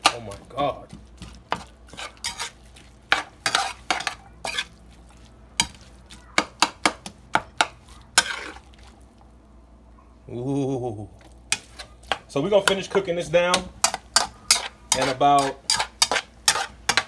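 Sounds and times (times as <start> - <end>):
food sizzling: 0.0 - 9.7, 11.2 - 17.0
metal spoon scraping skillet: 1.5 - 4.8, 7.6 - 8.6, 11.5 - 17.0.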